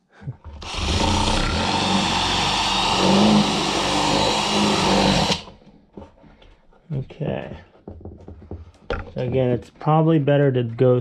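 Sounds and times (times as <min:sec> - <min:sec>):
cordless drill boring into plastic: 0:00.6 - 0:05.6.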